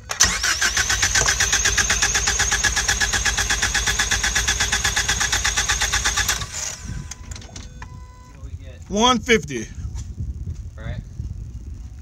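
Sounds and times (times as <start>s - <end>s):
engine cranking chug: 0.0s - 7.3s
starter motor whine: 0.0s - 8.3s.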